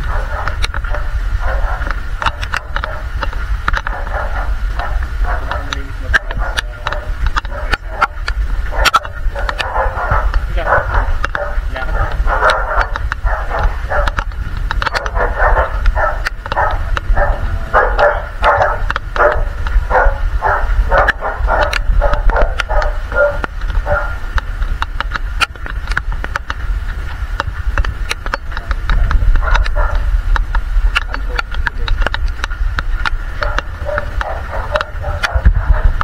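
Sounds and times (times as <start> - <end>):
dog barking: 0.0 - 3.1, 3.8 - 24.2, 29.3 - 30.1, 33.3 - 36.0
low rumble: 0.0 - 36.0
sharp clicks: 0.0 - 36.0.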